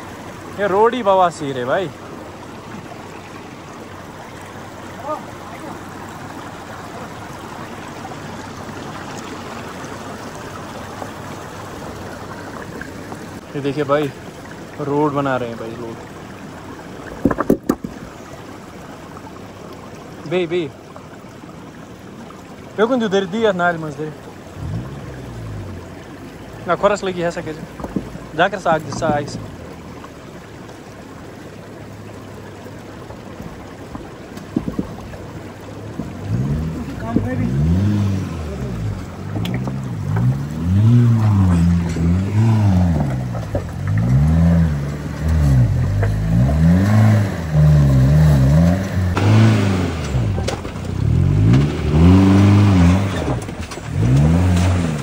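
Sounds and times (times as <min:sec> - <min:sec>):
river rushing: 0:00.0 - 0:55.0
short knocks: 0:27.7 - 0:28.3, 0:33.9 - 0:35.2.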